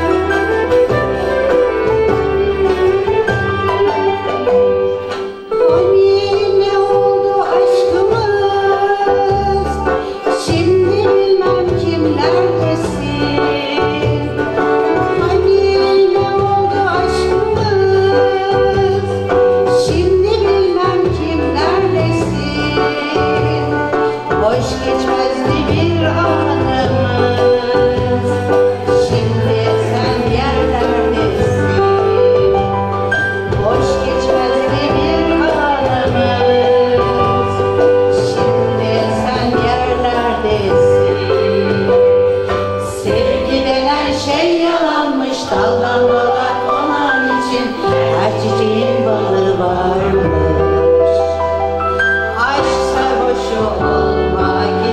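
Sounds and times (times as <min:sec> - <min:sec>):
ensemble playing with violin: 0:00.0 - 0:07.6
low rhythmic accompaniment: 0:00.0 - 0:54.9
violin: 0:00.0 - 0:54.9
woman singing: 0:00.0 - 0:54.9.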